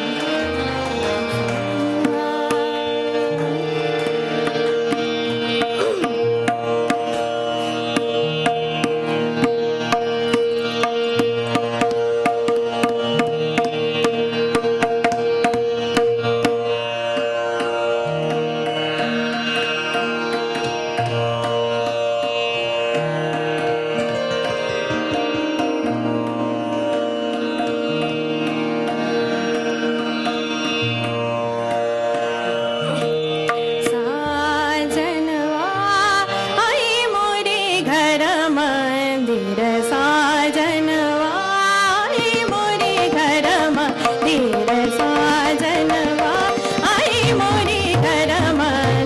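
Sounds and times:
tabla strokes: 0.0s - 35.2s, 40.0s - 49.0s
harmonium melody: 0.0s - 49.0s
tanpura drone: 0.0s - 49.0s.

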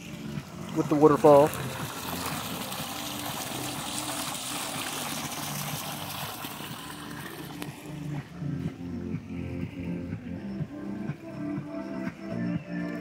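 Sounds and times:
waterfall splashing into pool: 0.0s - 8.1s.

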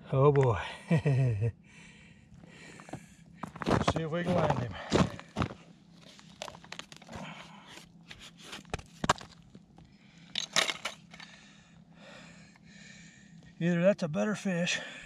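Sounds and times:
boots crunching on snow and ice: 2.8s - 7.2s.

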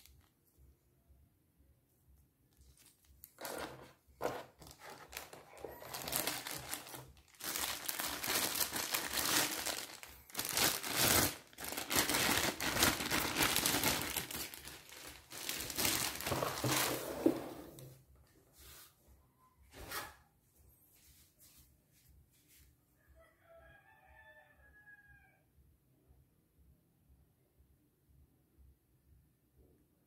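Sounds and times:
plastic bag crinkling: 2.7s - 17.4s.

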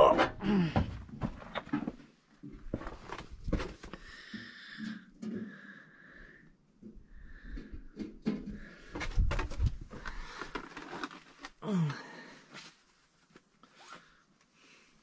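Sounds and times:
footsteps crunching on rubble: 1.2s - 4.0s.

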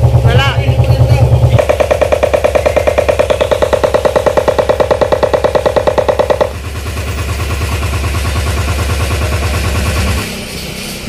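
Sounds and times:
bass-heavy music with rapid beats: 0.0s - 6.6s.

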